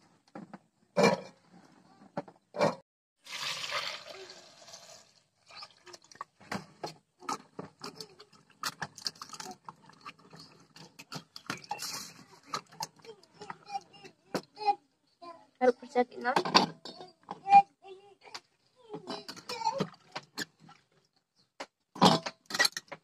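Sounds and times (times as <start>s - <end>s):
water rushing into pail: 3.2s - 6.4s
splashes and clinks in steel pail: 7.2s - 13.1s.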